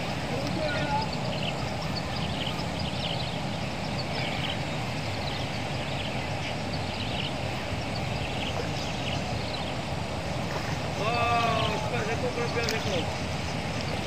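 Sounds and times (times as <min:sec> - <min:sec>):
faint high chirps: 0:00.0 - 0:09.8.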